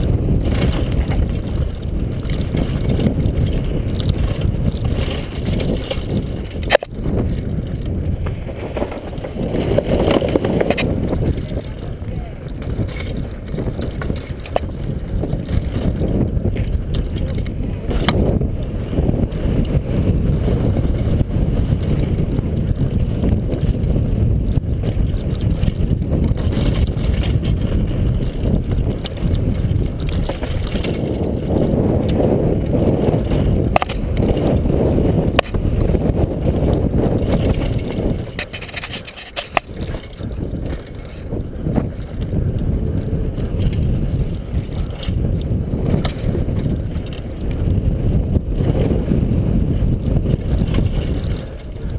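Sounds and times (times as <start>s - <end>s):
bike tyres rumbling over dirt: 0.0s - 51.9s
wind buffeting microphone: 0.0s - 51.9s.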